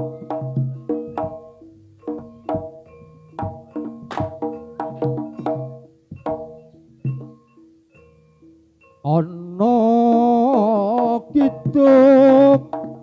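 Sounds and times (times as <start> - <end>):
drum strokes: 0.0 - 7.5, 10.5 - 13.0.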